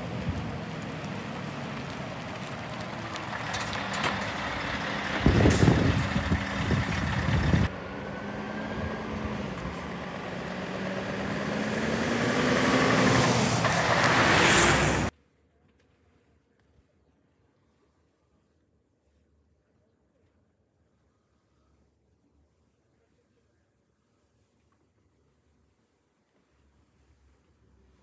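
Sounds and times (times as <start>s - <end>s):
truck diesel engine driving by: 0.0s - 15.1s.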